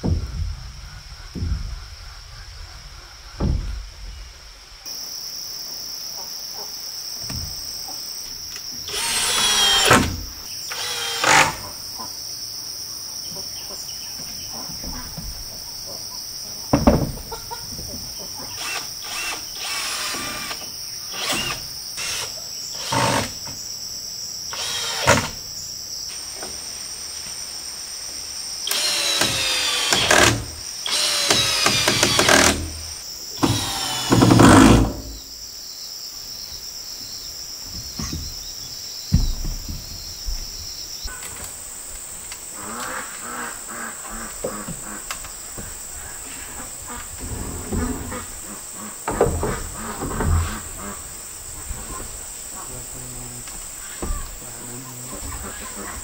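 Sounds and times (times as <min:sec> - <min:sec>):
high-pitched insect drone: 0:07.0 - 0:12.5, 0:18.4 - 0:26.2, 0:28.6 - 0:39.3.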